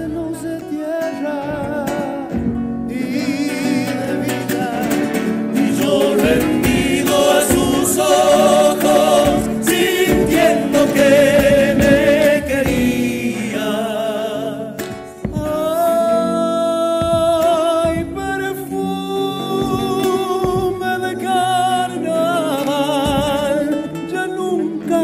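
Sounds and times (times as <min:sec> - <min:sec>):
strummed acoustic guitars: 0:00.0 - 0:25.0
voices singing in harmony: 0:02.8 - 0:17.2
bass drum beating: 0:05.6 - 0:13.6, 0:15.2 - 0:16.0, 0:17.0 - 0:18.7, 0:19.6 - 0:21.0.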